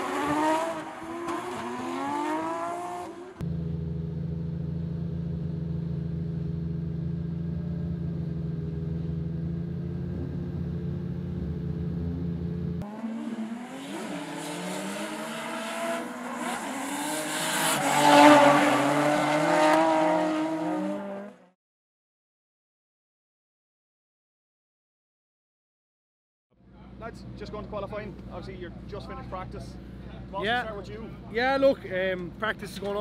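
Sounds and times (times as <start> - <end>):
car engine revving: 0.0 - 21.6
car engine idling: 3.4 - 12.8.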